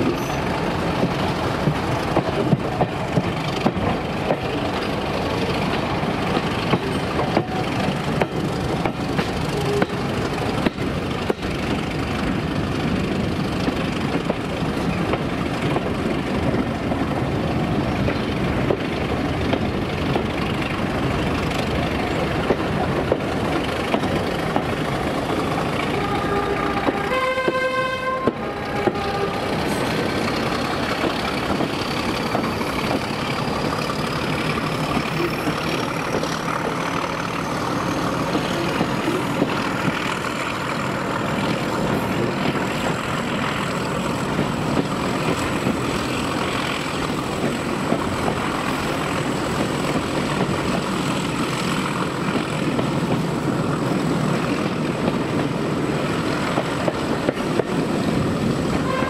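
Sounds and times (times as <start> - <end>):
train rumbling: 0.0 - 59.0
two-tone train horn: 9.5 - 10.2, 25.8 - 29.6, 58.7 - 59.0.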